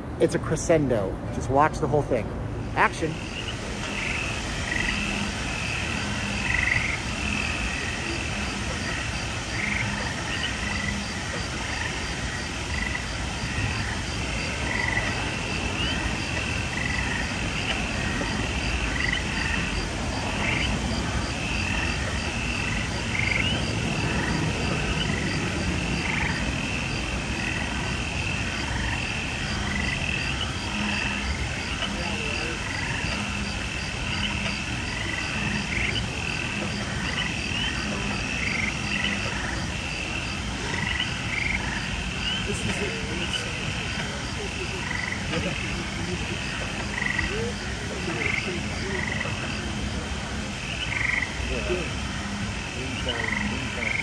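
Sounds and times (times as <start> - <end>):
constant rushing noise: 0.0 - 54.0
frog-like chirping and croaking: 2.6 - 54.0.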